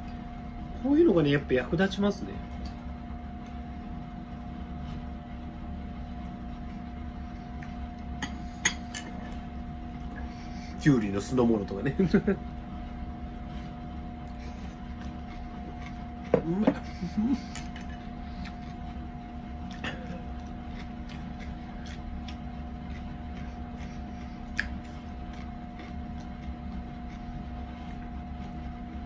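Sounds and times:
electrical hum: 0.0 - 29.0
faint chewing: 13.4 - 29.0.

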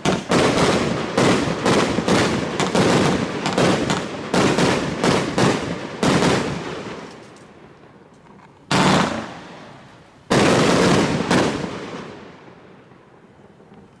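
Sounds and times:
firework bangs: 0.0 - 8.0, 8.6 - 13.9.

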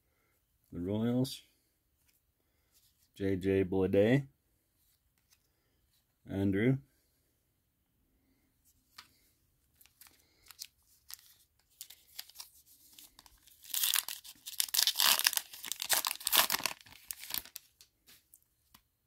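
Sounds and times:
card pack wrapper tearing: 9.8 - 17.8.

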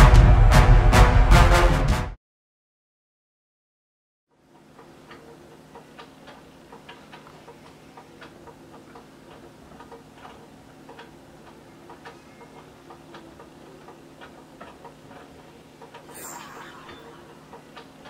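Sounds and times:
motor hum: 11.3 - 18.0.

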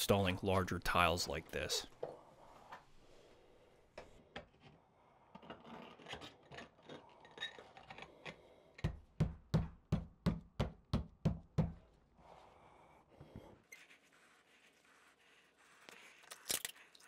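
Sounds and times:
tile scraping and clicking: 4.0 - 8.6.

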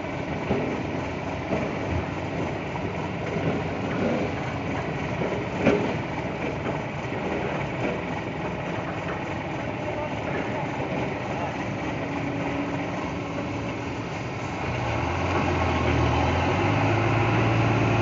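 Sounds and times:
excavator diesel engine running: 0.0 - 18.0
logs knocking: 0.4 - 9.2.

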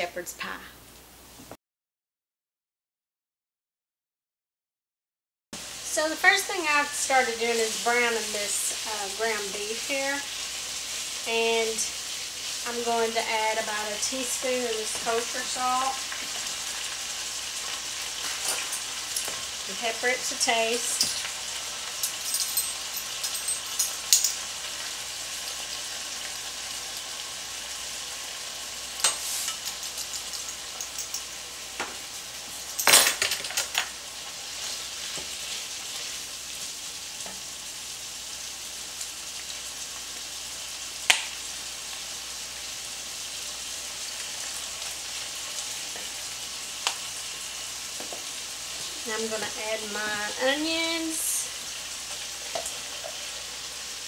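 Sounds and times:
meat sizzling in a skillet: 5.6 - 54.0
pepper mill grinding: 17.6 - 19.6, 20.5 - 24.5.

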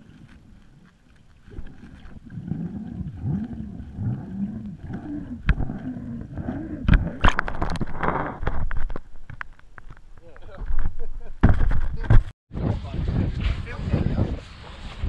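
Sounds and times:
low wavering underwater hum: 0.0 - 8.0
water splashing: 0.0 - 10.8.

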